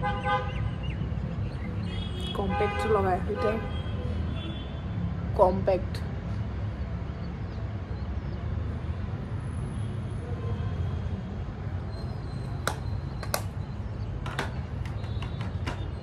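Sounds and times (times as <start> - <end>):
traffic rumble: 0.0 - 16.0
makeup cases clicking: 12.6 - 16.0.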